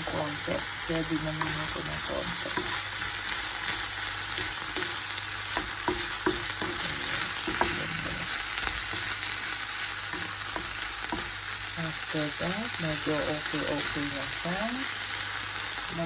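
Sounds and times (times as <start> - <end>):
food sizzling in a frying pan: 0.0 - 16.0
spatula knocking against pan: 5.5 - 7.8.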